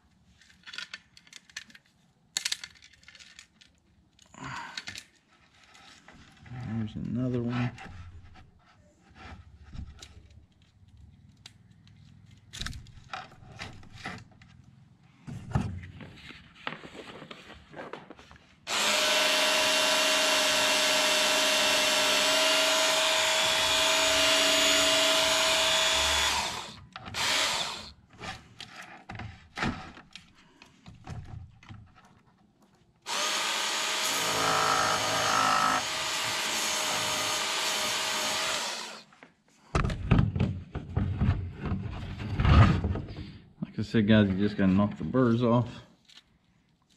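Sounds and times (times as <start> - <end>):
electric belt sharpener whining: 18.7 - 27.9, 33.1 - 39.1.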